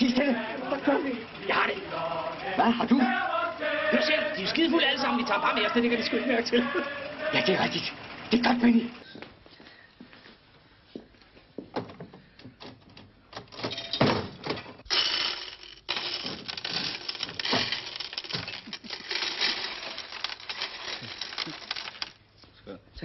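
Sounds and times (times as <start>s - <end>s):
metallic clatter of coins: 14.8s - 22.2s.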